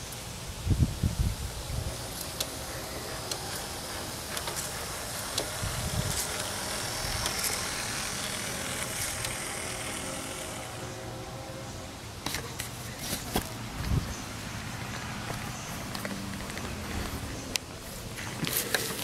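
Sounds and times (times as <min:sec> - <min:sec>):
model train motor whir: 0:01.5 - 0:12.7
wheels clicking on rails: 0:01.6 - 0:19.0.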